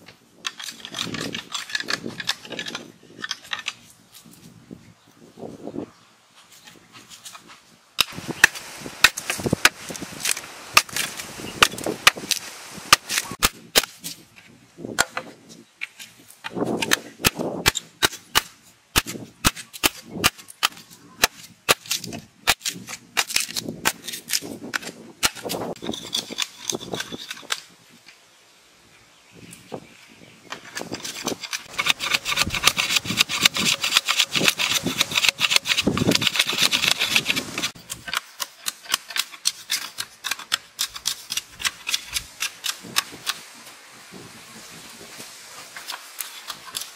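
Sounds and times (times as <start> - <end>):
blade scraping bamboo: 0.5 - 3.9, 6.5 - 14.5, 15.6 - 27.8, 30.5 - 43.5, 45.6 - 46.9
blade chopping bamboo: 8.0 - 14.2, 16.5 - 25.7, 30.8 - 43.4.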